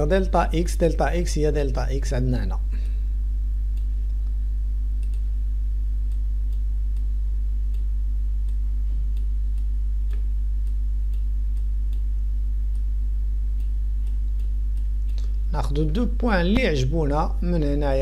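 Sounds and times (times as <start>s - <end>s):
low electrical hum: 0.0s - 18.0s
faint light ticks: 3.7s - 4.4s, 5.0s - 5.3s, 6.0s - 12.1s, 12.7s - 12.9s, 13.6s - 15.4s.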